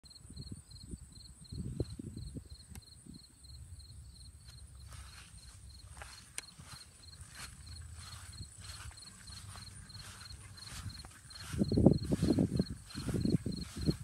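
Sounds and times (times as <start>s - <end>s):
insect chirping: 0.1s - 14.0s
low rumble on microphone: 7.2s - 14.0s.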